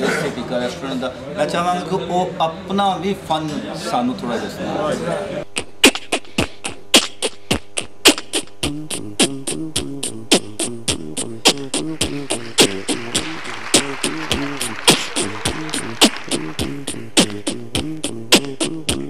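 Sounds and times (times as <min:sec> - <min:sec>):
hummed bass line: 0:05.5 - 0:19.0
man beatboxing drum hits: 0:05.5 - 0:19.0.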